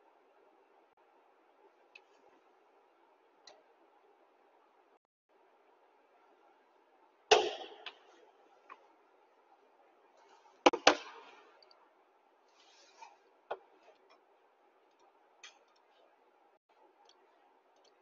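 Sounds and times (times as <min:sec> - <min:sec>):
faint steady hum: 0:00.0 - 0:18.0
loud sharp knocks: 0:07.3 - 0:07.8.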